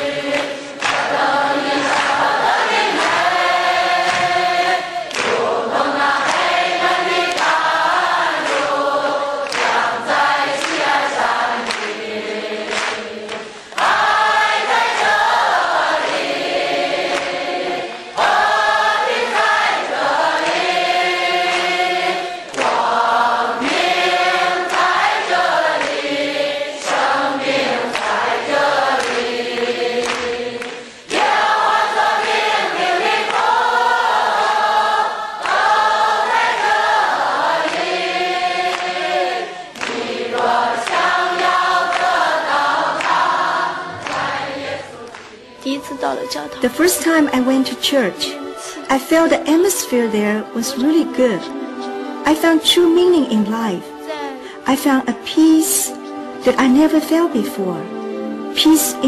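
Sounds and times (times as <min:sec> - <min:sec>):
congregation singing a worship song: 0:00.0 - 0:45.7, 0:46.4 - 0:53.1
hands clapping: 0:00.0 - 0:45.7.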